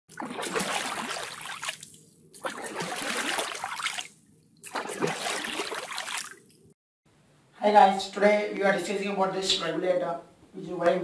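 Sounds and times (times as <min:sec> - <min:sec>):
water splashing and trickling: 0:00.1 - 0:06.7.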